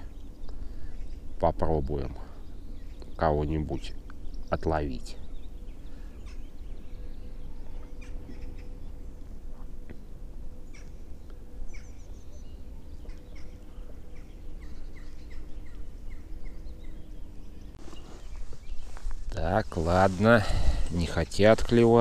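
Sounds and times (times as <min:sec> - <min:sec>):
birds chirping and calling: 0:00.0 - 0:22.0
faint steady hum: 0:00.0 - 0:22.0
short evenly repeated bird notes: 0:00.0 - 0:22.0.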